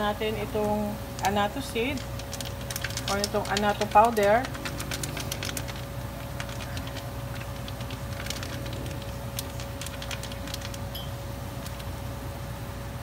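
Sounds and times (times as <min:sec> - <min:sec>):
crackles and pops: 0:02.0 - 0:10.9, 0:11.6 - 0:12.0.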